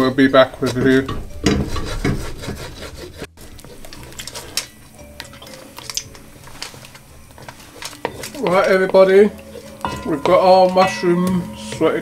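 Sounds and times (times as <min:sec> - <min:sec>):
wooden spoon scraping metal pot: 0:00.0 - 0:12.0
spoon knocking: 0:07.3 - 0:12.0.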